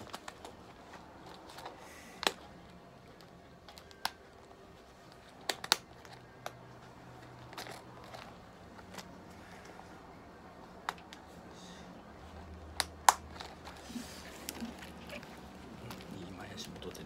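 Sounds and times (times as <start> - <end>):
plastic collar clicks and crinkles: 0.0 - 6.7, 7.4 - 9.2, 12.8 - 13.8.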